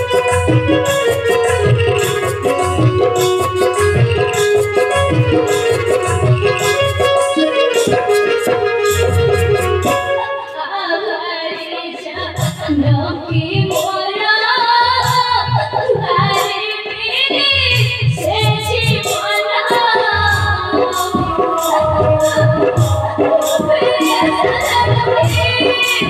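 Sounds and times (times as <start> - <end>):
jingling percussion strikes: 0.0 - 10.2.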